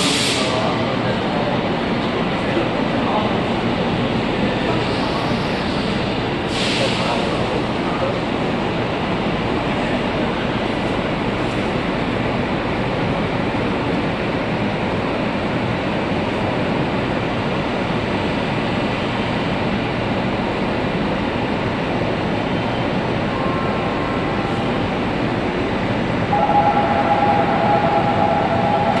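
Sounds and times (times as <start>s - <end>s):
train ventilation rushing: 0.0s - 23.3s.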